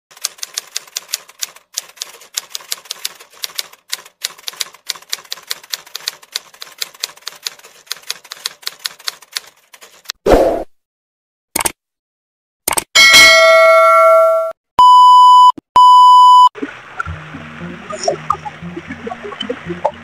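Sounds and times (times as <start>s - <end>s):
typewriter keystrokes: 0.1s - 10.2s.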